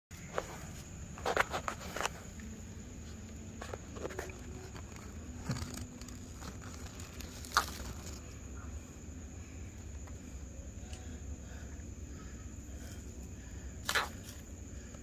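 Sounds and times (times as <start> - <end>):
high insect trill: 0.1 - 15.0
dry leaves rustling: 5.7 - 8.3.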